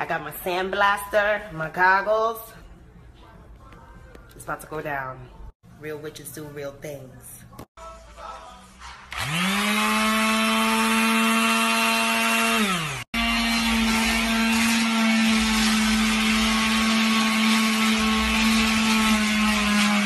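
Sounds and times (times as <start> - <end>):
power tool whining: 9.1 - 20.0.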